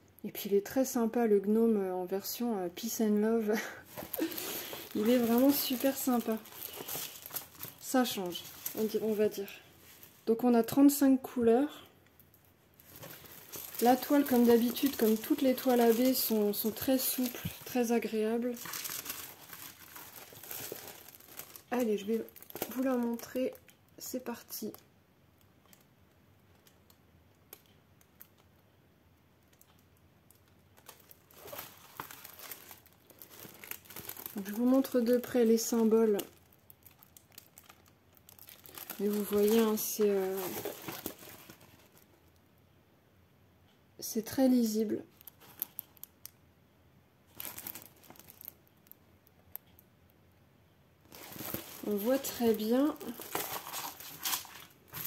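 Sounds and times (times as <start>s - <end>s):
plastic film crinkling: 3.5s - 10.7s, 12.2s - 23.7s, 29.5s - 42.2s, 45.1s - 46.4s, 47.3s - 49.8s, 51.0s - 55.0s.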